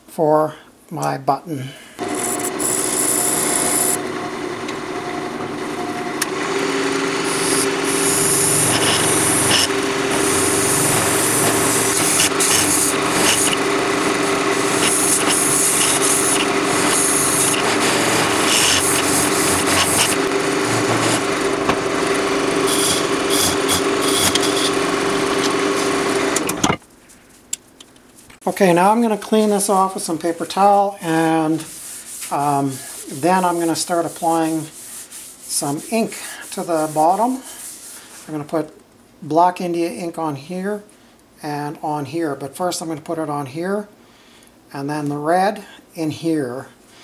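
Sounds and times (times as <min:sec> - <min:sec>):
lathe motor hum: 0:02.0 - 0:26.6
lathe tool scraping wood: 0:02.0 - 0:26.6, 0:30.6 - 0:38.4.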